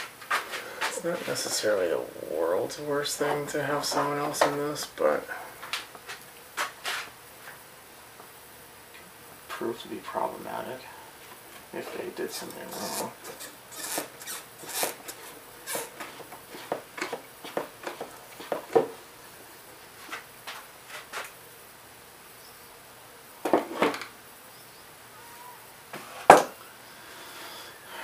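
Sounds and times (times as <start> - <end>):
hand tools clicking and knocking: 12.3 - 18.9.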